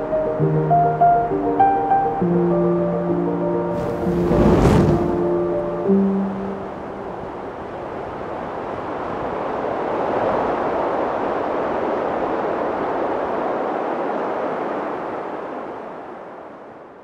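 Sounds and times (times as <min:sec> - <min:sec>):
steady rushing noise: 0:03.7 - 0:15.8.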